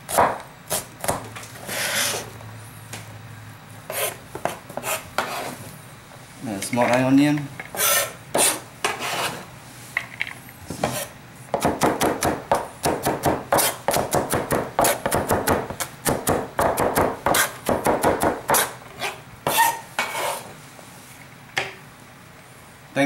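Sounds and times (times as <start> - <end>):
knife chopping on cutting board: 0.1 - 2.2, 3.9 - 5.5, 7.8 - 9.3, 10.8 - 20.4.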